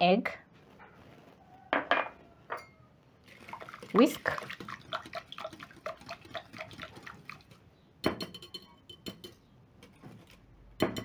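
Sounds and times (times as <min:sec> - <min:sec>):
glass clinking: 0:01.8 - 0:02.8, 0:08.0 - 0:09.4
whisk ticking against glass bowl: 0:04.4 - 0:07.5.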